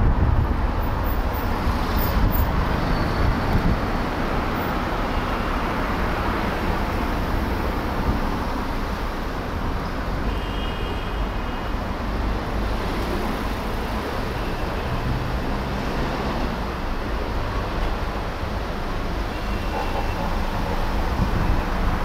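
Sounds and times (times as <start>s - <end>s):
vehicle engine and road noise: 0.0s - 22.0s.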